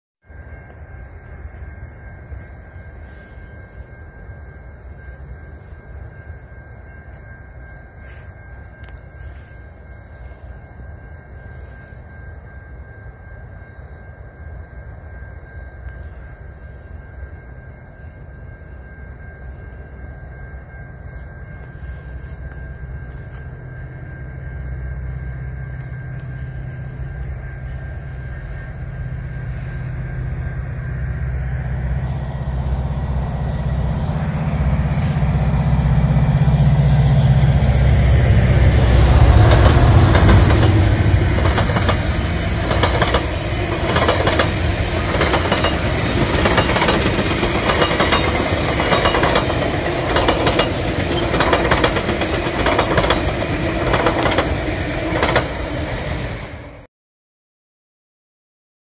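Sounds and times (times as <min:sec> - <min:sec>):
diesel locomotive rumble: 0:20.5 - 0:56.9
train wheels clicking over rail joints: 0:36.0 - 0:56.6.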